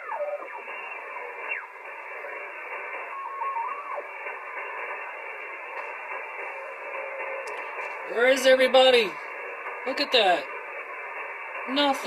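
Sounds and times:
radio whistling tones: 0.0s - 8.5s
radio static hiss: 0.0s - 12.0s.

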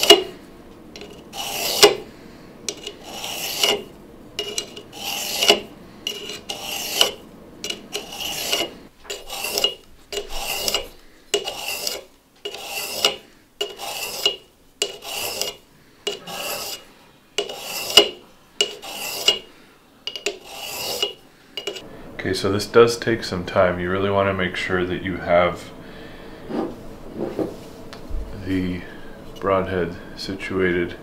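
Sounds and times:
blade scraping on sharpening stone: 0.0s - 0.3s, 1.0s - 2.0s, 2.7s - 19.5s, 20.1s - 21.8s.

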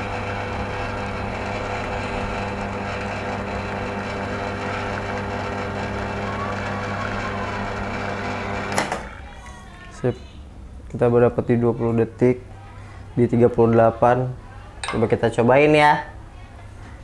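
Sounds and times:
espresso machine pump humming: 0.0s - 9.3s.

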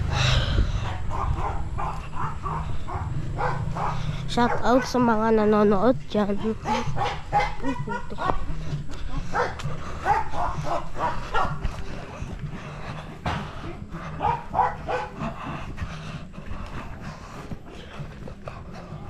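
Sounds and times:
steady low rumble: 0.0s - 19.0s
dog barking and yipping: 0.8s - 5.4s, 6.2s - 8.5s, 9.3s - 11.8s, 14.1s - 15.3s.

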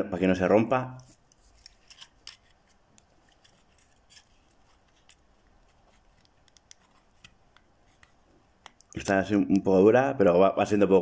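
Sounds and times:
small clicks and scrapes of fingers: 1.2s - 9.0s.

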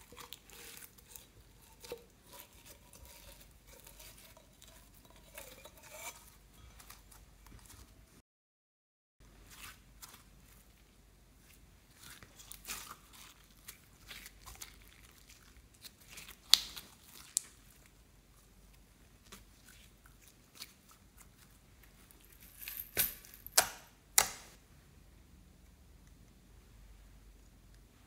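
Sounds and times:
slime crackling and popping: 12.0s - 17.9s.

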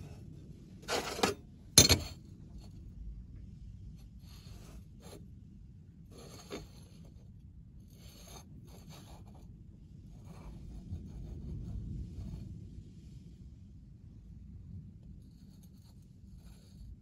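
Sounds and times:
low background rumble: 0.0s - 17.0s
metal scraping on metal: 0.8s - 2.2s.

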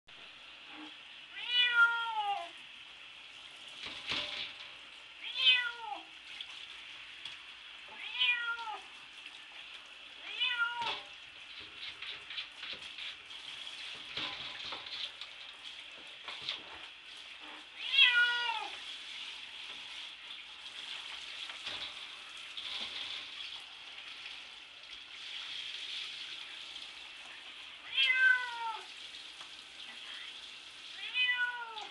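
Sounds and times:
shower water hissing: 0.1s - 31.9s
cat meowing: 1.3s - 2.6s, 5.2s - 6.1s, 7.9s - 8.9s, 10.2s - 11.0s, 17.8s - 18.8s, 27.8s - 28.9s, 31.0s - 31.9s
short scratches and knocks: 10.8s - 17.7s.

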